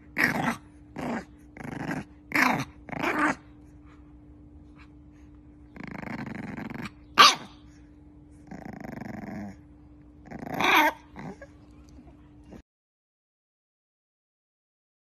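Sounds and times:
puppy growling: 0.0 - 4.0, 4.7 - 12.6
puppy barking: 7.1 - 7.6
puppy yipping: 7.2 - 7.6.

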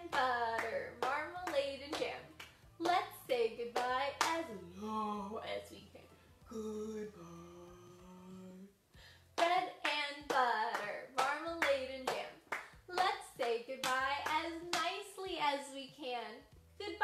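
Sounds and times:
hands clapping: 0.0 - 3.1, 3.8 - 4.4, 9.4 - 15.0.

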